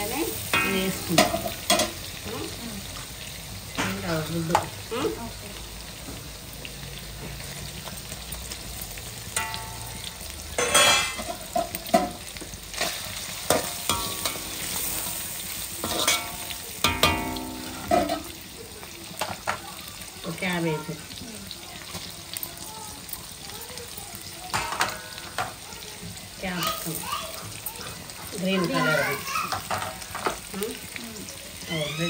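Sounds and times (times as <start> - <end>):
food sizzling in oil: 0.0 - 32.0
metal spatula scraping a pan: 0.3 - 2.1, 9.3 - 18.5.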